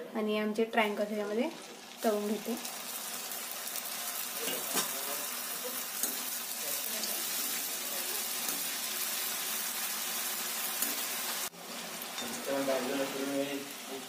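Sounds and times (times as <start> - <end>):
oil sizzling and bubbling: 0.9 - 14.0.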